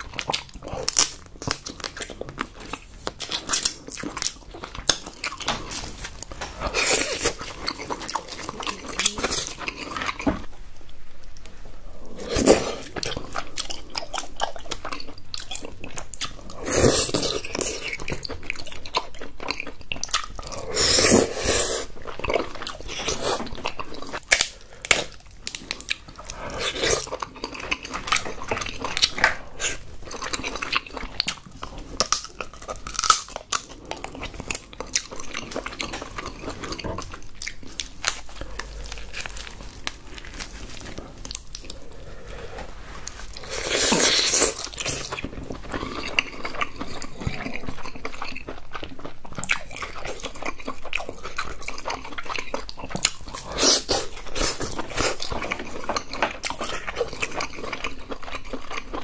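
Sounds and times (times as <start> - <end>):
crab shells cracking and crunching: 0.0 - 10.4, 22.1 - 41.8, 43.4 - 59.0
chewing close to microphone: 0.0 - 10.5, 12.1 - 59.0.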